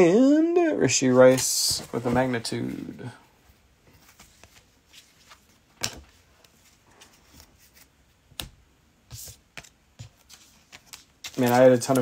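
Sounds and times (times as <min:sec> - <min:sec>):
cards rustling: 0:03.9 - 0:08.5, 0:09.1 - 0:12.0.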